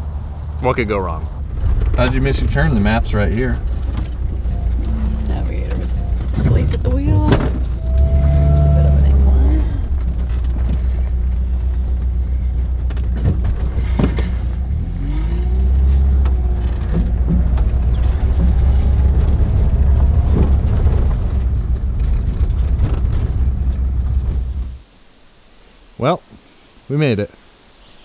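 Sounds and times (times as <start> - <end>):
engine and road rumble: 0.0 - 28.0
van knocking and rattling: 1.1 - 7.9, 9.0 - 15.0, 15.6 - 24.8.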